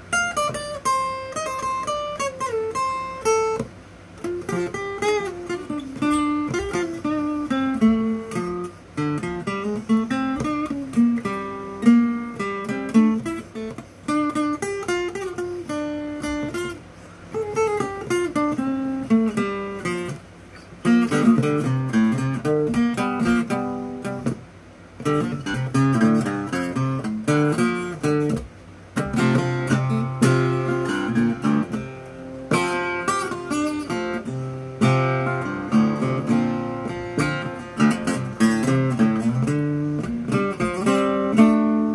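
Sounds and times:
acoustic guitar solo: 0:00.0 - 0:41.9.

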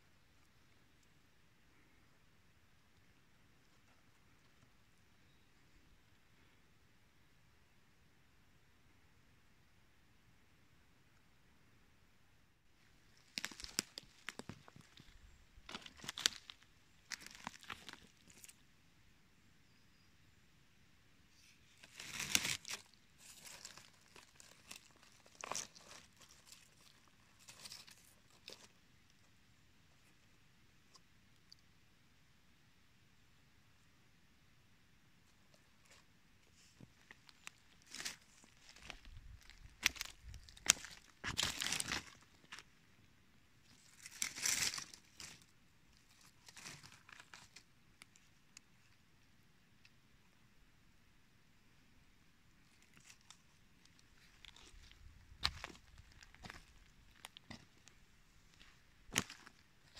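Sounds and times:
forest litter crackling and rustling: 0:12.8 - 0:18.7, 0:21.3 - 0:29.2, 0:35.3 - 0:42.7, 0:43.6 - 0:48.9, 0:52.6 - 0:59.9
twigs snapping: 0:13.2 - 0:18.5, 0:21.8 - 0:28.7, 0:37.2 - 0:42.6, 0:43.9 - 0:45.4.

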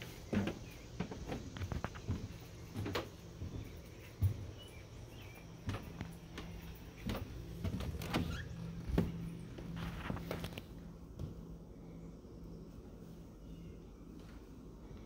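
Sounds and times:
footsteps on wooden porch: 0:00.0 - 0:11.9
steady low hum: 0:00.0 - 0:15.0
front door unlatched and opened: 0:07.0 - 0:09.1.

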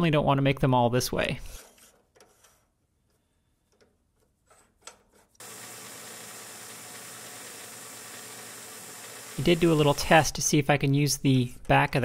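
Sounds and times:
lathe running hiss and hum: 0:05.4 - 0:10.3.

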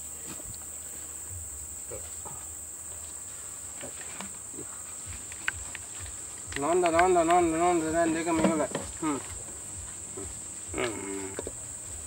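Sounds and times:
high insect drone: 0:00.0 - 0:12.0
faint clicks: 0:05.2 - 0:07.4
elephant calf calling: 0:06.5 - 0:11.7.

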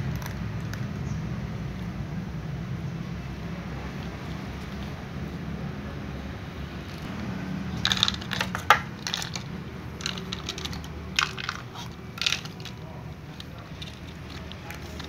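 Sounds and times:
cats crunching dry kibble: 0:00.0 - 0:01.0, 0:03.7 - 0:05.5, 0:07.8 - 0:15.0.

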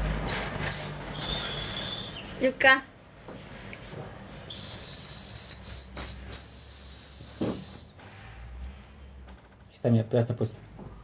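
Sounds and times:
person whistling: 0:00.3 - 0:02.3, 0:04.5 - 0:08.0.

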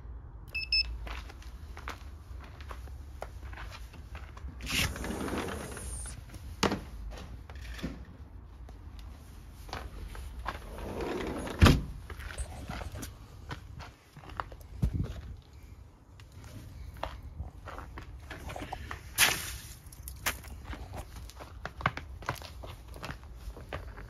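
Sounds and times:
footstep scuffs on icy concrete: 0:01.0 - 0:05.0, 0:16.2 - 0:24.0.

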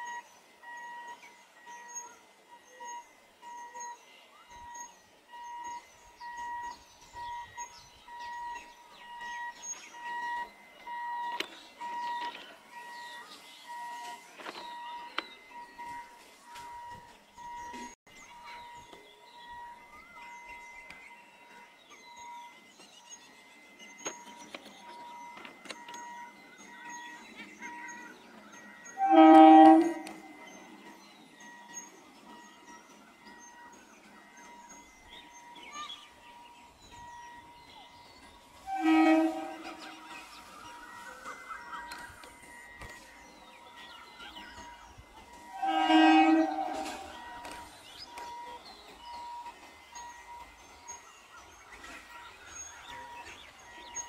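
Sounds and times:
electronic warning beeps: 0:00.0 - 0:21.4
birds chirping: 0:00.0 - 0:54.0
train approaching: 0:00.0 - 0:54.0
train horn blast: 0:29.0 - 0:30.4, 0:38.6 - 0:40.2, 0:45.4 - 0:47.5.

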